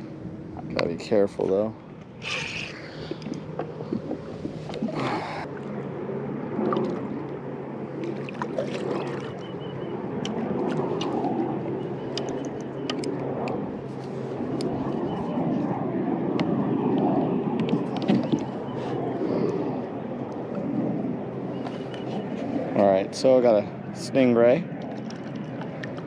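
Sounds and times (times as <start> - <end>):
water splashing against kayak hull: 8.0 - 9.4.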